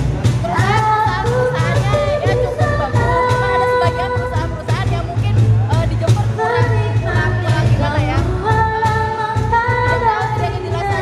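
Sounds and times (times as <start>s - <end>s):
steady bass line: 0.0s - 11.0s.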